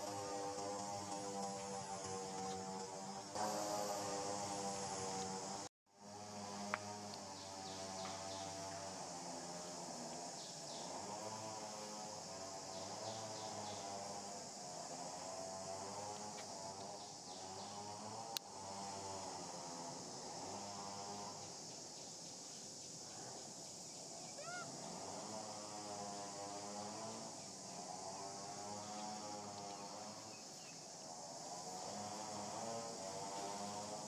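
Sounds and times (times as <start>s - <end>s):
insects buzzing: 0.0s - 34.0s.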